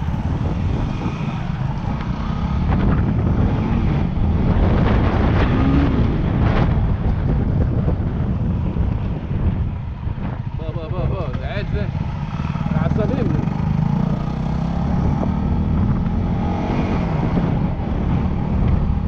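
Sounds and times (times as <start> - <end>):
dirt bike engine running: 0.0 - 19.0
wind buffeting microphone: 0.0 - 19.0.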